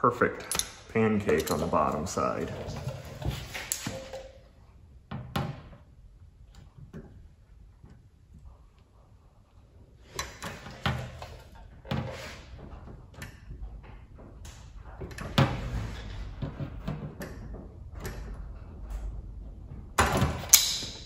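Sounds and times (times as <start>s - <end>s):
scraping and handling noise: 0.3s - 4.8s
metal pliers clicks and clanks: 0.4s - 1.7s.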